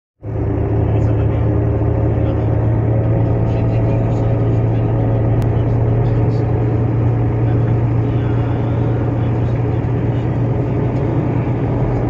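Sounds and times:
boat engine droning: 0.2 - 12.0
wind: 0.2 - 12.0.

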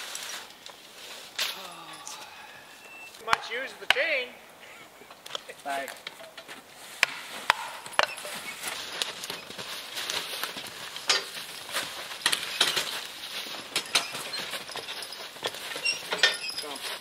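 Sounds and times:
light knocks and clinks: 11.0 - 17.0.

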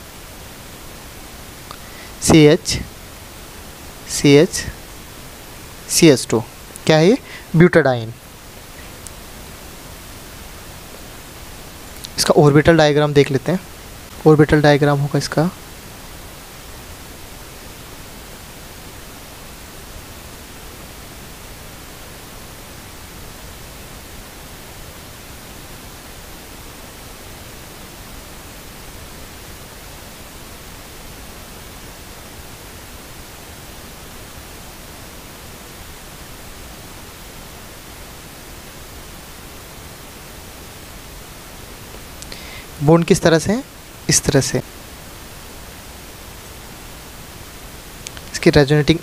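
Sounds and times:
steady background hiss: 0.0 - 49.0.

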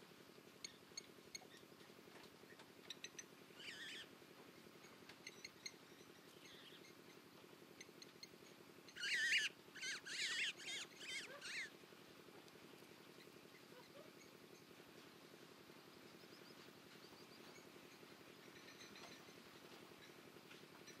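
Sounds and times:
bird calling: 2.5 - 4.1, 7.8 - 11.8.

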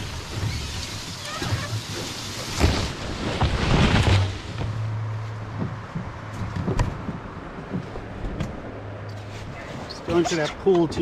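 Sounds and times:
branches scraping along canoe: 0.0 - 6.4, 9.1 - 11.0
sharp knocks: 5.5 - 8.6.

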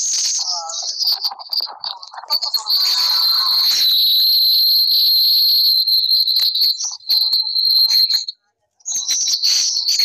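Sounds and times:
scattered clicks: 0.0 - 1.8
high-pitched whistling tone: 2.4 - 8.3.

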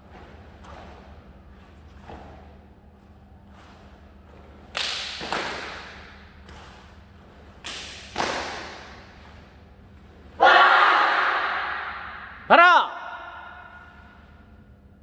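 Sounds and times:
uniforms snapping sharply: 4.7 - 6.7, 7.6 - 9.0.

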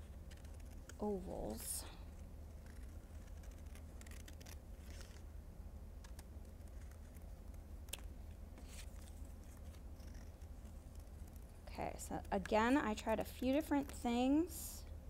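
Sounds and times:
scissors snipping paper: 2.5 - 5.2.

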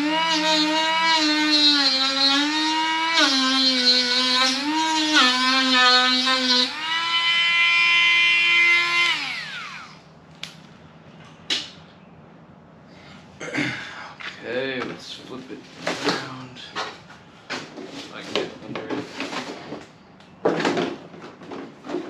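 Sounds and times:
rotary tool whining: 0.0 - 10.1.

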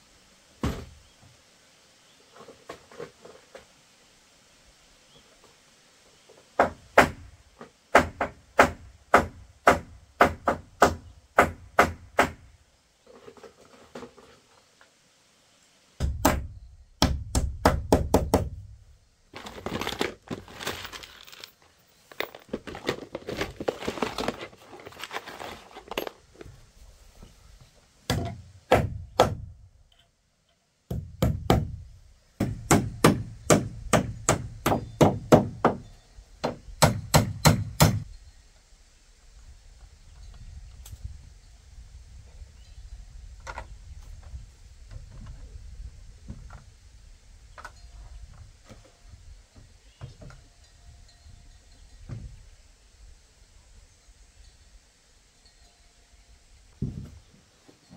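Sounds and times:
heavy blows chopping wood: 7.9 - 12.4, 16.0 - 18.6, 28.1 - 29.5, 30.9 - 31.8, 32.4 - 35.8.

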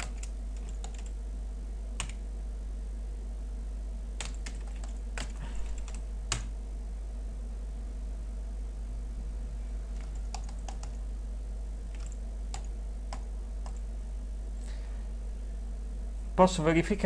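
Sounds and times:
computer keyboard typing: 0.0 - 1.2, 2.0 - 2.2, 4.2 - 6.5, 9.9 - 11.0, 11.9 - 13.8
steady low hum: 0.0 - 17.0.

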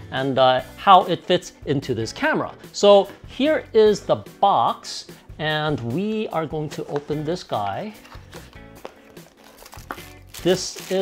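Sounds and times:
quiet background music: 0.0 - 11.0
cardboard box rustling: 8.0 - 11.0
plastic bags crinkling: 9.0 - 11.0.

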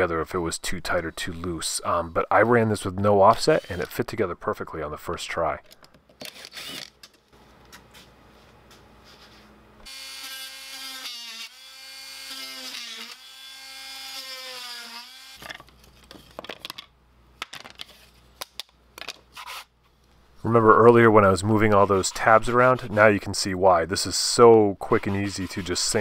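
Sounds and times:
oscillating multi-tool whining: 6.3 - 6.9
plywood pieces clacking: 15.4 - 19.2.

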